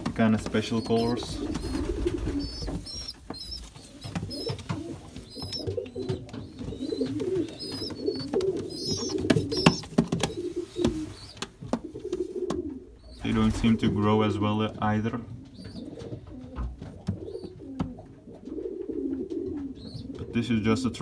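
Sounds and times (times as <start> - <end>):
sharp taps and knocks: 0.0 - 12.7
pigeons cooing: 0.0 - 21.0.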